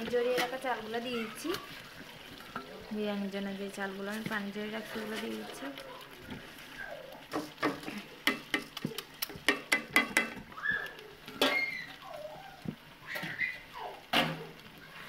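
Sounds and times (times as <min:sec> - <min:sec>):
utensil knocking on cooking pot: 0:09.4 - 0:10.4
gliding animal calls: 0:10.4 - 0:15.0.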